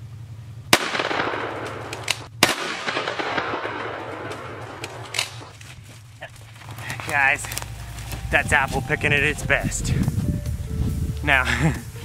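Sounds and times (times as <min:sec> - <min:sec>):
shotgun shots with echo: 0:00.7 - 0:05.5.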